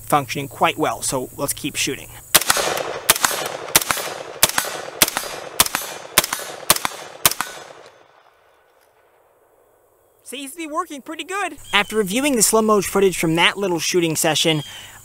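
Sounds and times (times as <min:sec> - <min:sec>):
rifle gunshots: 0:02.3 - 0:09.3.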